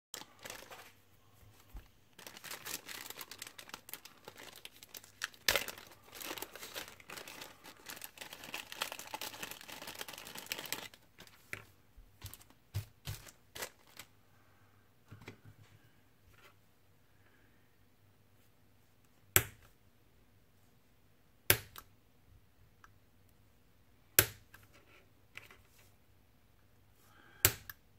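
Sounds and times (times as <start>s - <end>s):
plastic bag crackle: 0.1s - 11.6s, 12.2s - 14.1s
plastic bag crinkling: 0.1s - 14.1s.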